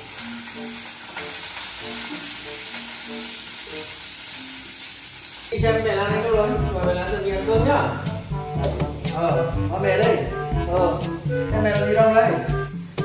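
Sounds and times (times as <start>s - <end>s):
food sizzling in a pan: 0.0s - 11.5s, 12.3s - 13.0s
soft background music: 0.0s - 13.0s
loud music: 5.6s - 13.0s.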